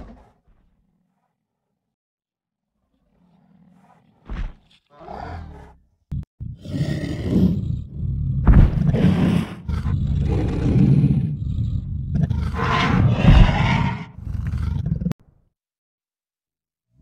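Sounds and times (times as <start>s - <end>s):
deep rumbling dinosaur roars: 2.9s - 5.8s, 6.5s - 15.2s.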